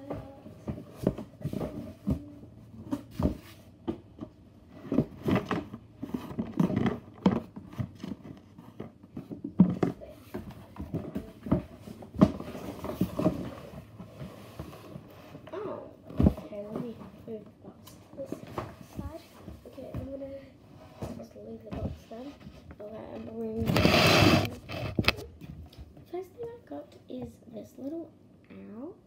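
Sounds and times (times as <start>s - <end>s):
cardboard scratching and tearing: 23.6s - 25.2s.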